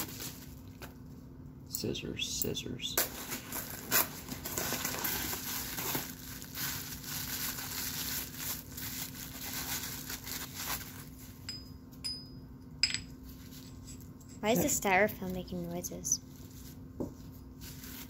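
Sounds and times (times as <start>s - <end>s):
bubble wrap crinkling: 0.0s - 0.9s, 3.1s - 11.4s, 15.1s - 16.9s, 17.5s - 18.0s.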